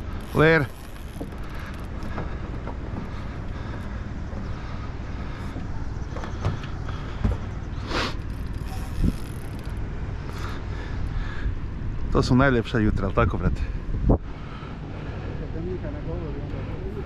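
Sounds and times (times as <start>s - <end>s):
boat motor humming: 0.0s - 12.5s.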